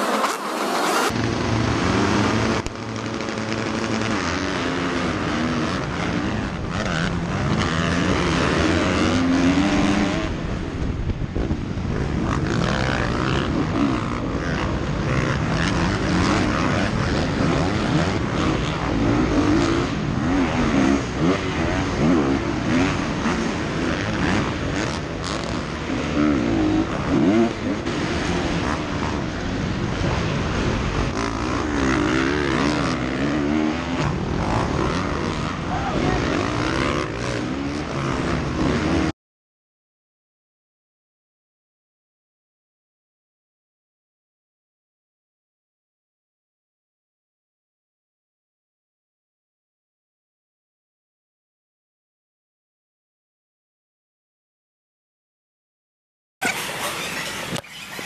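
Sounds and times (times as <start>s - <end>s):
dirt bike engine revving: 0.0s - 39.1s
other motocross bikes running: 0.0s - 39.1s.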